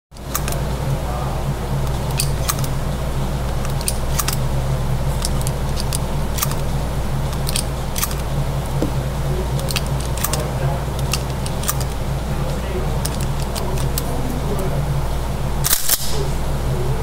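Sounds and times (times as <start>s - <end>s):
ventilation hum: 0.1s - 17.0s.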